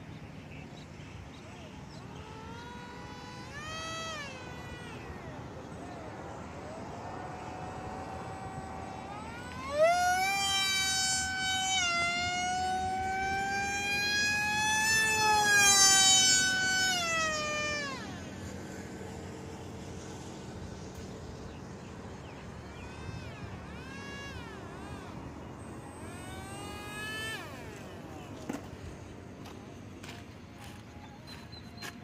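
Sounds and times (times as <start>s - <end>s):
model jet motor whining: 1.2s - 32.0s.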